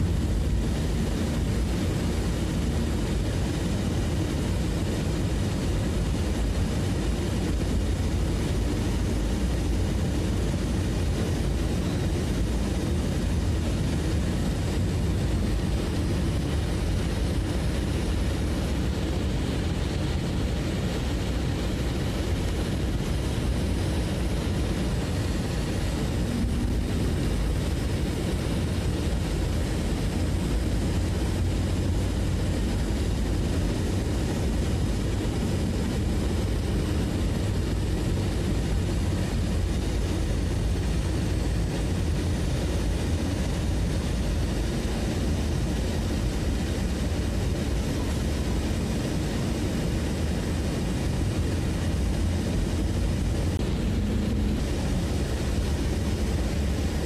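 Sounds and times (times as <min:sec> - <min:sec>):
low engine drone: 0:00.0 - 0:57.0.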